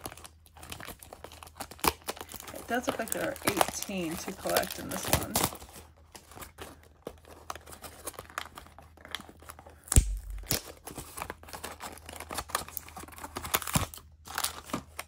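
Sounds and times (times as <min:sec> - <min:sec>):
plastic wrap tearing and crinkling: 0:00.0 - 0:15.0
loud thump: 0:10.0 - 0:10.5.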